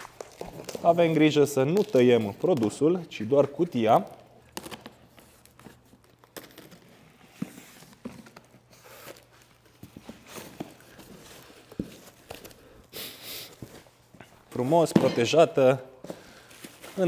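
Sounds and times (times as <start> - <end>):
cardboard rustling: 0.0 - 12.7.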